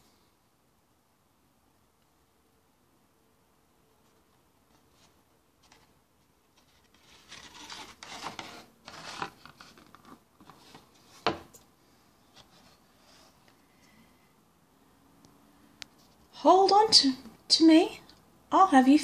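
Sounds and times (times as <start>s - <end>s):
cardboard page scraping on counter: 6.6s - 11.3s.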